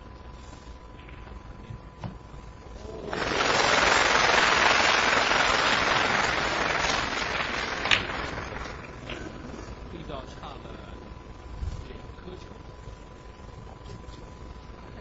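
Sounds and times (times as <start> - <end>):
audience applauding: 3.0 - 9.0.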